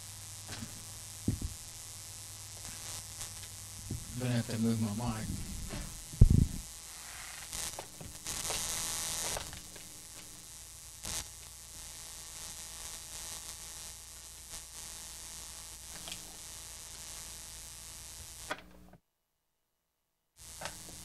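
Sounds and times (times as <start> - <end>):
low hum and hiss: 0.0 - 19.0
cable plugs crackling and clicking: 5.1 - 10.4.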